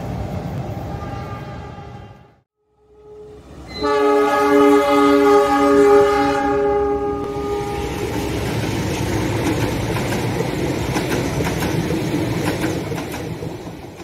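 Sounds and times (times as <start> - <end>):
passenger coaches rumbling past: 0.0 - 14.0
locomotive horn: 0.9 - 8.1
wheels clacking over rail joints: 7.8 - 14.0.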